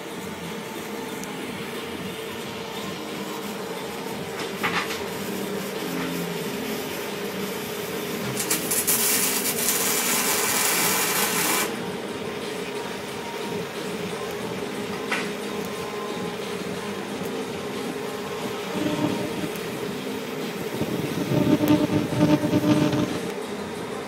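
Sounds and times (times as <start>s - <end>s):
welding arc hissing: 2.6s - 11.8s, 15.3s - 23.3s
welding crackle: 8.2s - 11.7s, 17.1s - 23.4s.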